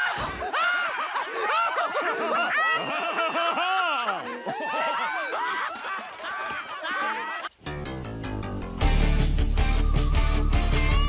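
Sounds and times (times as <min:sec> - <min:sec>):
people laughing: 0:00.0 - 0:07.6.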